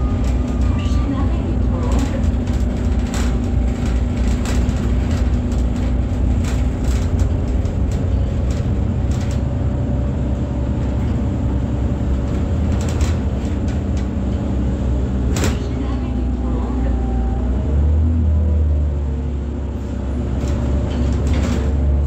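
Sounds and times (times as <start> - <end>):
bus diesel engine running: 0.0 - 22.0
cabin clicks and rattles: 1.6 - 9.7.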